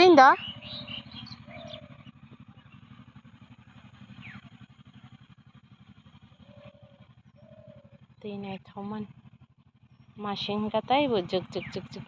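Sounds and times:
faint distant engine running: 0.0s - 12.0s.

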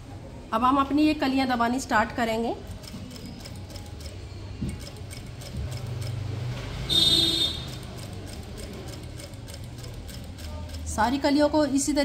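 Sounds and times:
needle ticks: 2.7s - 6.4s, 7.4s - 11.5s
sewing machine motor hum: 2.7s - 11.2s.

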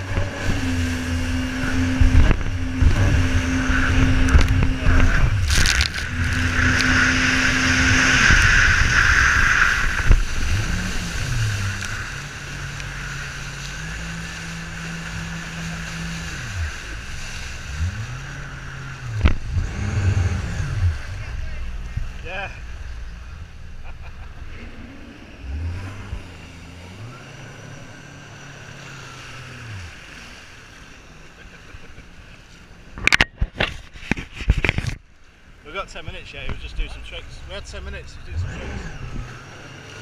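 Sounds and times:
wind on microphone: 0.0s - 26.4s
jet ski engine running: 0.0s - 40.0s
rushing water: 0.0s - 40.0s.

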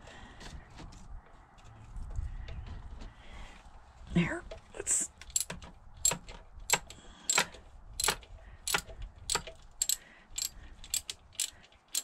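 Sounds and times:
socket ratchet clicking: 5.2s - 12.0s.

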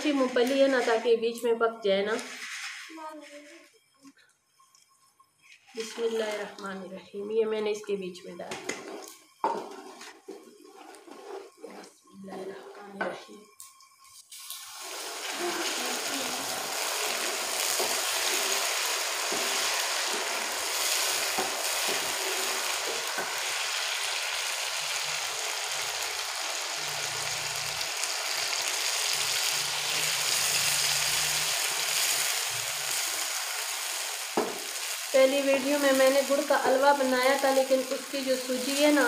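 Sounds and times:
semolina sizzling in hot fat: 0.0s - 39.0s
wooden spoon stirring: 8.8s - 13.0s.

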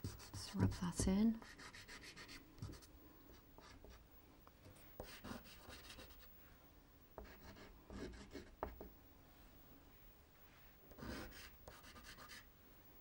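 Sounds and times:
pastel scratching on paper: 0.0s - 2.9s, 5.0s - 6.3s, 11.0s - 12.5s.

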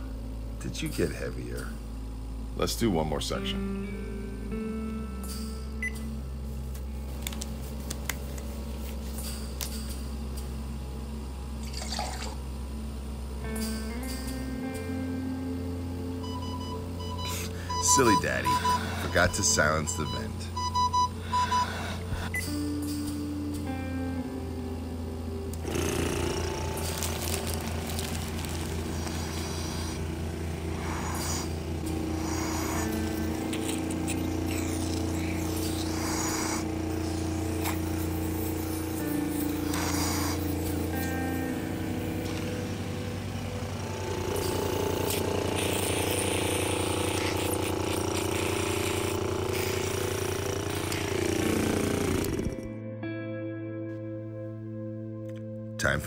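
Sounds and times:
suction machine motor pulsing hum: 10.0s - 52.8s
handheld frother whirring: 25.6s - 42.5s, 43.8s - 52.7s
air hissing through tube: 28.8s - 41.0s, 44.4s - 52.2s.

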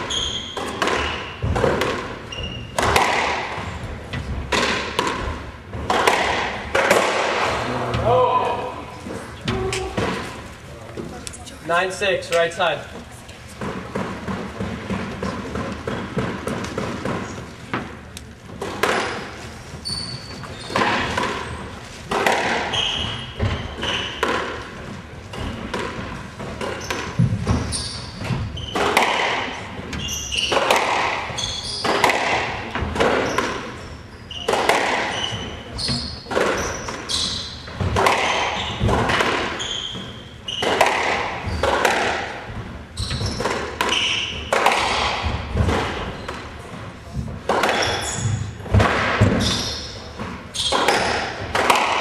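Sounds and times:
squash ball hits: 0.0s - 8.2s, 13.5s - 19.4s, 20.2s - 52.0s
sneakers squeaking on hardwood: 0.0s - 11.3s, 12.4s - 52.0s.

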